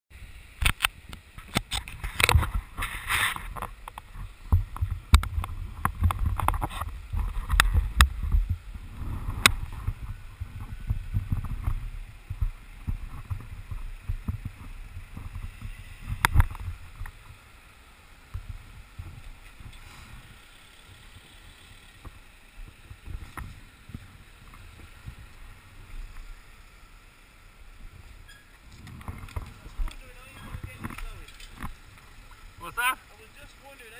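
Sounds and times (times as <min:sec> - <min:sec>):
low microphone rumble: 0:04.1 - 0:17.6.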